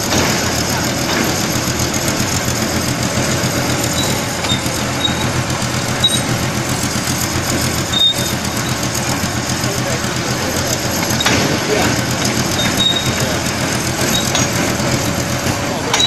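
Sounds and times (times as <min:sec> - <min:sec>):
belt conveyor mechanical hum: 0:00.0 - 0:16.0
brief high squeaks: 0:04.0 - 0:05.3, 0:06.0 - 0:06.3, 0:07.9 - 0:08.4, 0:12.5 - 0:13.2.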